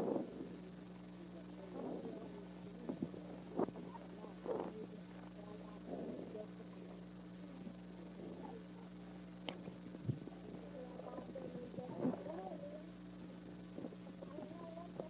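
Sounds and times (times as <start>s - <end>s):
faint indistinct voices: 0.0s - 15.0s
videotape hum and hiss: 0.0s - 15.0s.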